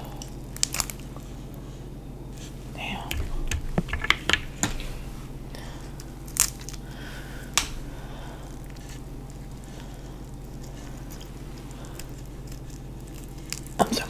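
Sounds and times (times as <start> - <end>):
shrimp shell cracking: 0.2 - 1.2, 3.1 - 7.8, 8.6 - 13.8.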